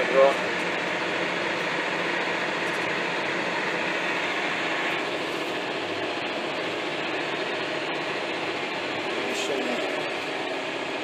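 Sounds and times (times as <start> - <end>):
tractor diesel engine drone: 0.0 - 11.0.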